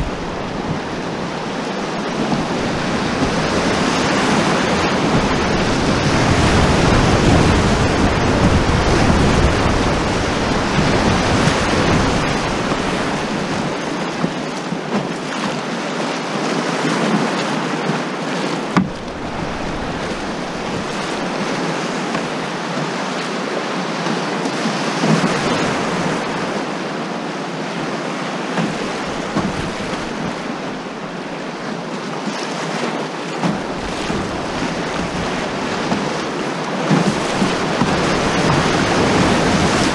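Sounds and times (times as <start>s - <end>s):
wind buffeting microphone: 0.0s - 15.0s, 17.8s - 23.0s, 33.4s - 39.9s
whitewater rapids rushing: 0.0s - 39.9s.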